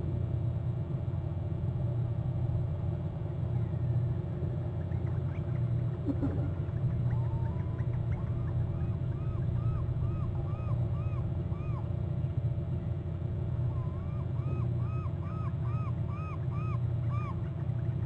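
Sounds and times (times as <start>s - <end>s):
eagle yelping whistles: 7.1s - 11.8s, 13.7s - 17.4s.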